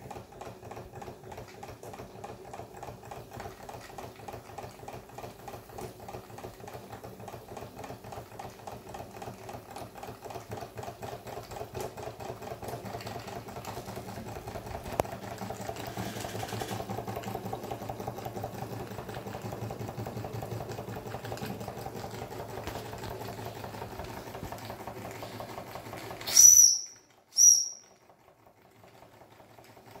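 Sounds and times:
toy steam engine chuffing: 0:00.0 - 0:18.0, 0:24.8 - 0:30.0
high steam whistle toots: 0:26.2 - 0:28.0.

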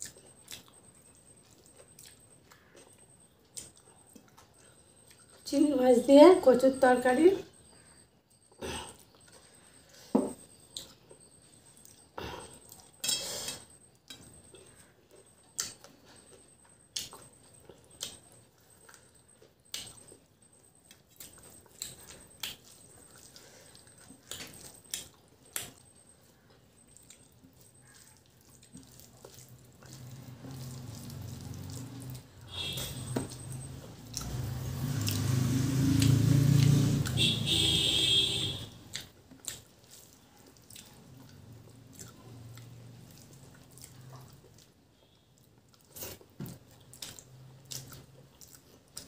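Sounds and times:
mouth and finger clicks eating: 0:15.3 - 0:15.9, 0:16.9 - 0:19.1, 0:20.9 - 0:25.8, 0:38.6 - 0:44.8, 0:45.4 - 0:49.0.

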